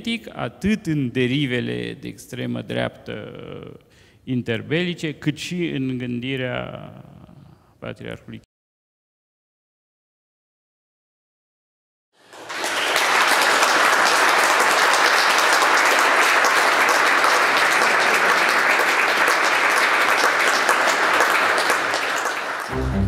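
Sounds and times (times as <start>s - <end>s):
audience applauding: 12.2s - 23.0s.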